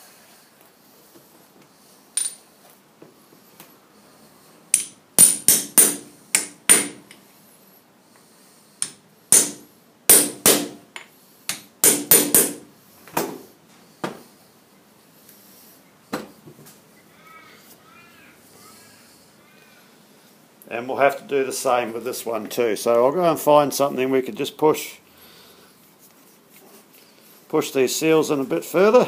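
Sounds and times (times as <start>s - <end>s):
hammer tapping metal: 4.7s - 7.2s, 8.8s - 12.7s.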